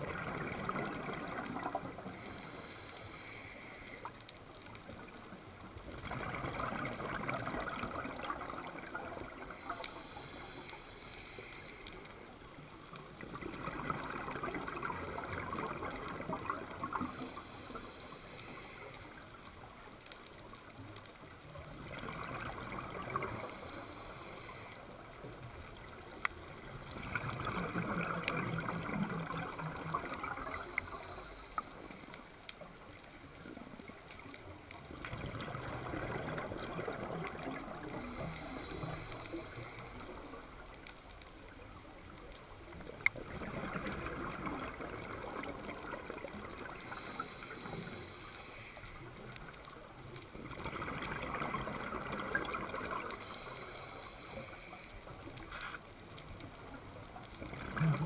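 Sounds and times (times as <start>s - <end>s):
underwater bubbles gurgling: 0.0s - 58.0s
faint sharp clicks: 0.1s - 58.0s.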